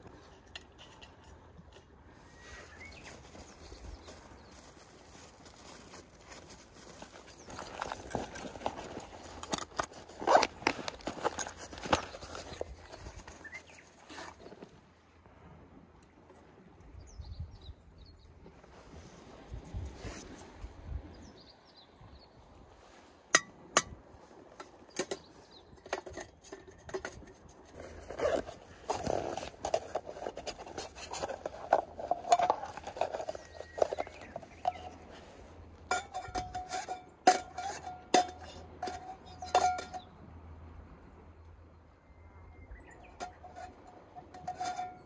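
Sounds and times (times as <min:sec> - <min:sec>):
metal cookware clinking: 0:35.9 - 0:40.1.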